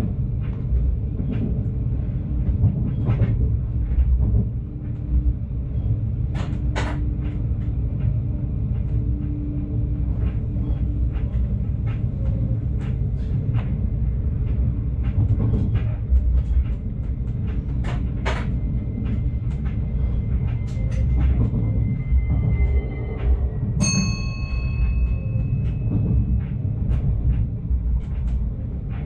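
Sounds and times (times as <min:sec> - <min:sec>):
train rumbling on rails: 0:00.0 - 0:29.0
running gear clicks and knocks: 0:10.1 - 0:23.3.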